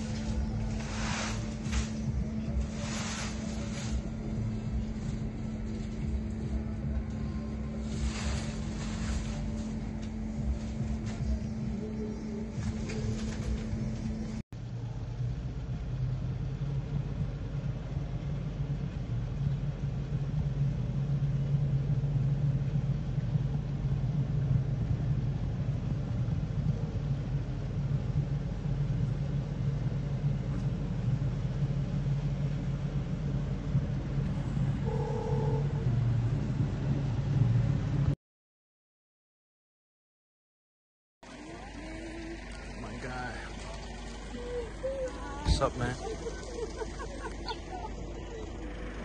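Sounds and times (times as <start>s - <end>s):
motor vehicle rumbling: 0.0s - 38.2s, 41.2s - 49.0s
brief higher tone: 34.8s - 36.1s.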